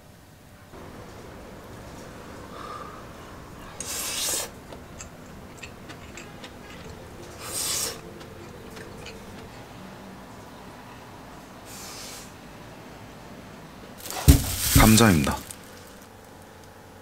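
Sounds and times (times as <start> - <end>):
man chewing food: 1.8 - 9.8
bursts of hiss: 14.0 - 16.0.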